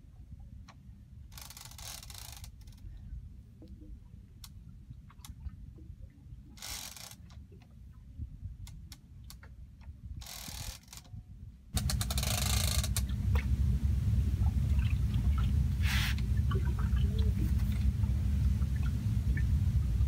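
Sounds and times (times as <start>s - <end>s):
steady low rumble: 0.0s - 1.4s, 2.5s - 6.6s, 7.2s - 10.2s, 11.0s - 20.0s
fishing reel clicking and ratcheting: 1.3s - 2.8s, 6.6s - 7.4s, 10.2s - 11.1s, 11.8s - 13.1s.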